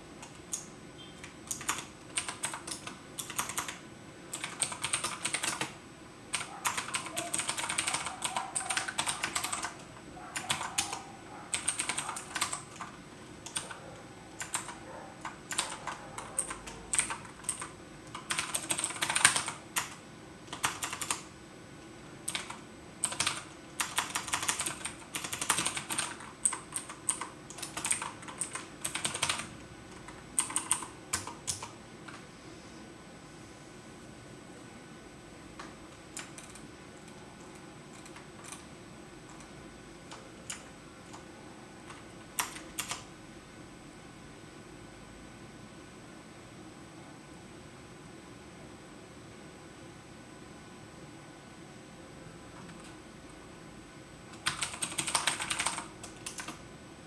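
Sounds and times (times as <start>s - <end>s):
computer keyboard typing: 0.2s - 13.8s, 14.4s - 21.3s, 22.2s - 32.2s, 35.6s - 38.7s, 39.3s - 43.1s, 54.3s - 56.6s.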